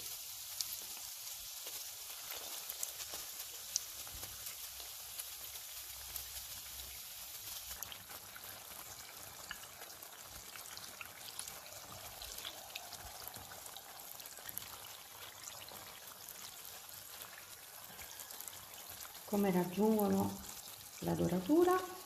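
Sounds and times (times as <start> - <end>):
dough deep-frying in oil: 0.0 - 22.0.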